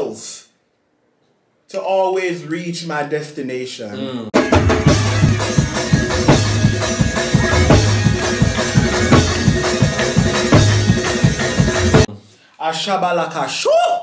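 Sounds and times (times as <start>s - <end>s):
bass line: 4.4s - 12.1s
fast music with driving drums: 4.4s - 12.1s.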